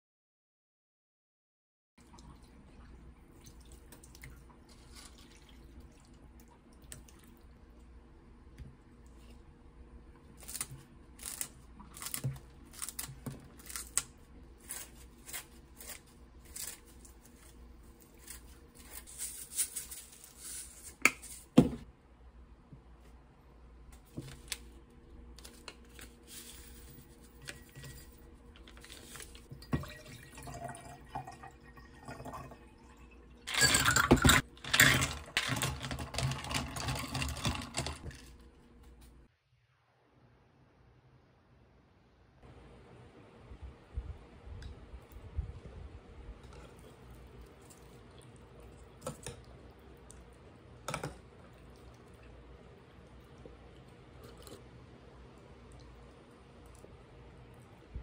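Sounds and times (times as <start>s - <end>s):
liquid poured into glass: 29.7s - 33.1s.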